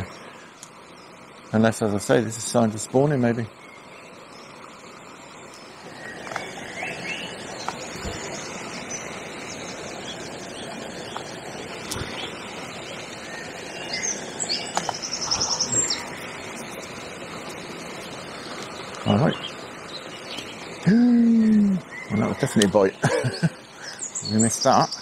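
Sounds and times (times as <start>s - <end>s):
small birds chirping: 0.0s - 25.0s
water rushing over weir: 0.0s - 25.0s
bird trill: 5.2s - 17.0s, 17.9s - 20.7s, 21.8s - 25.0s.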